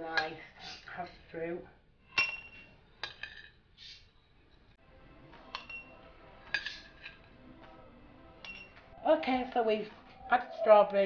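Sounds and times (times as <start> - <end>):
metal spoon clinking on glass: 5.5 - 5.9, 8.4 - 8.8.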